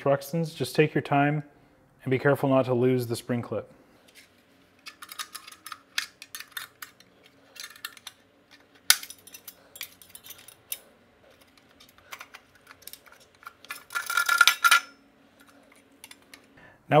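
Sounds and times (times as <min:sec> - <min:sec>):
metal clicks and scrapes: 0:04.8 - 0:16.5.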